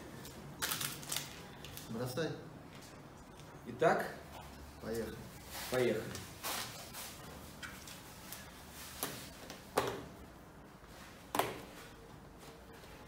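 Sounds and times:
faint plastic rustling: 0.2s - 3.6s.

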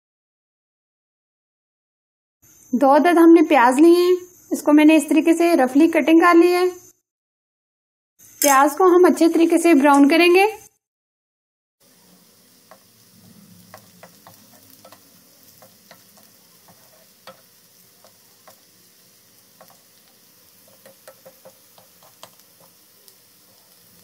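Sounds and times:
onions sizzling in oil: 8.2s - 10.6s, 11.8s - 24.0s
spatula clicking and tapping: 12.6s - 13.0s, 13.7s - 24.0s.

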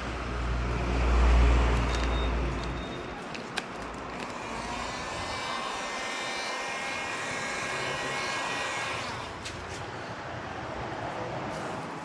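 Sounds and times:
heat gun fan with motor whine: 4.2s - 9.8s.

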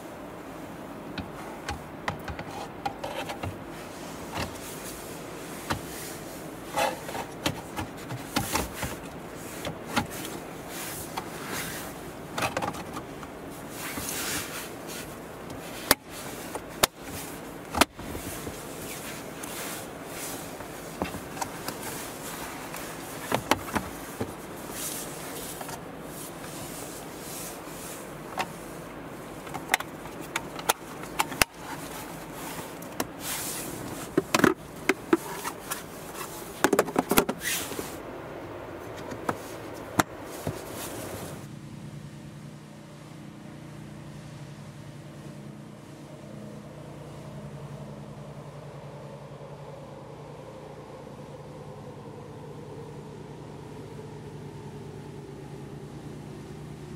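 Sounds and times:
background hiss: 0.0s - 56.9s
scraping and rubbing: 1.3s - 28.8s, 29.4s - 38.0s, 38.9s - 41.5s.

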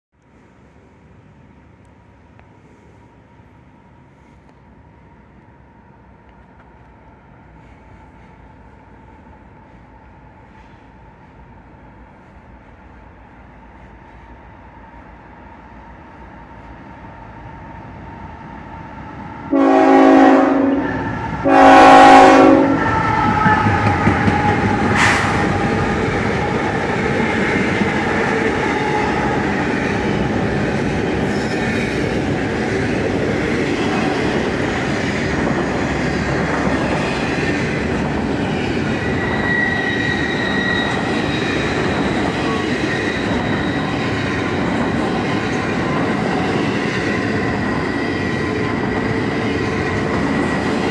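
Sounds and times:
train wheels rumbling on rail: 0.3s - 50.9s
train horn blasts: 19.5s - 24.1s.

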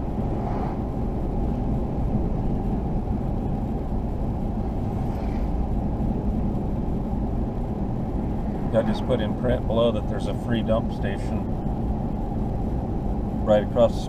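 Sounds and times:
passing vehicle swish: 0.0s - 2.4s, 4.5s - 6.6s
car road and engine noise: 0.0s - 14.0s.

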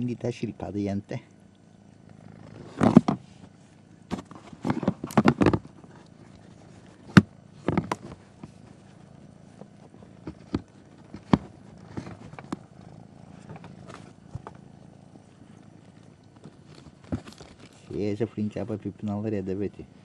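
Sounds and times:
short rustles and knocks: 2.4s - 14.6s, 15.8s - 18.0s.

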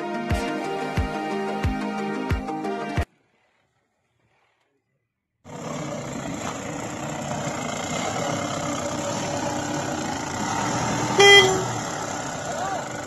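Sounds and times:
suv engine running: 5.5s - 13.0s
car horn toot: 11.1s - 11.8s.

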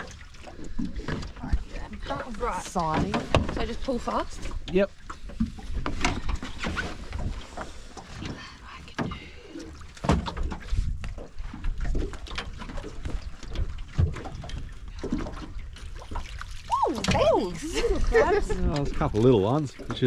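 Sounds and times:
water slapping against boat hull: 0.0s - 20.0s
rope knocking and scraping on boat: 0.1s - 9.2s, 9.9s - 16.4s.

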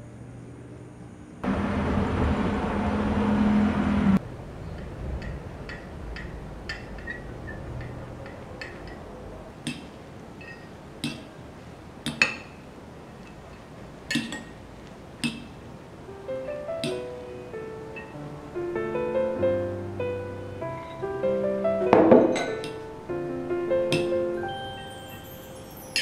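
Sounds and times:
passing vehicle hum: 0.0s - 11.7s, 15.6s - 25.9s
fork clinking against ceramic bowl: 9.7s - 11.3s.

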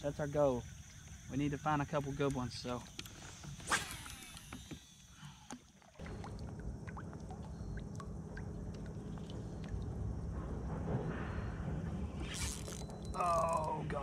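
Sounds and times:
low steady rumble: 6.0s - 14.0s.

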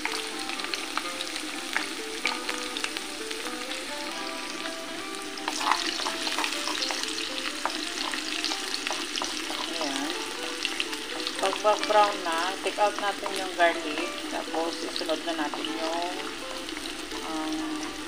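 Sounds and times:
garlic sizzling in oil: 0.0s - 18.0s
wooden spatula stirring: 5.5s - 10.0s.

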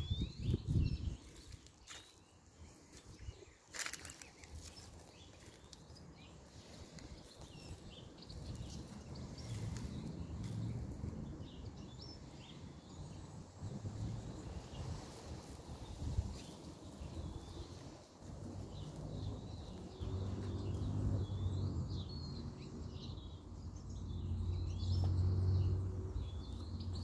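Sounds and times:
footsteps: 2.9s - 5.8s.

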